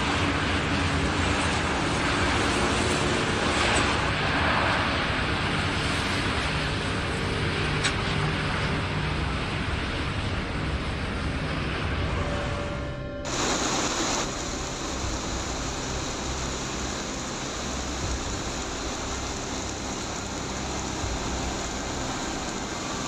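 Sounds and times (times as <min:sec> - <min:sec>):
storm wind: 0:00.0 - 0:23.0
heavy surf breaking on rocks: 0:13.3 - 0:23.0.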